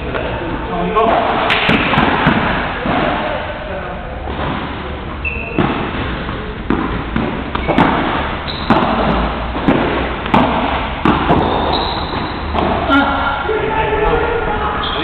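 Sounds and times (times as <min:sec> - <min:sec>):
ball and racket hits: 0:01.0 - 0:03.4, 0:04.2 - 0:13.2.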